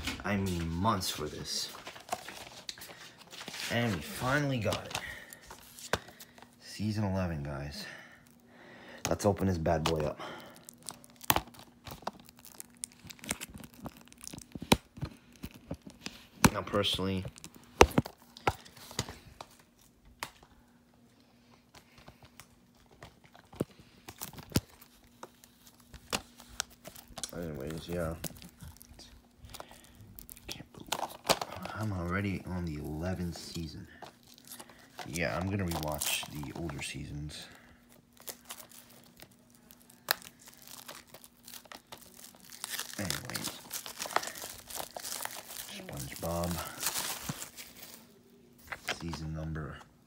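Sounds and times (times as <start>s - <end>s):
faint steady hum: 0.0s - 50.0s
light crinkling: 21.2s - 49.8s.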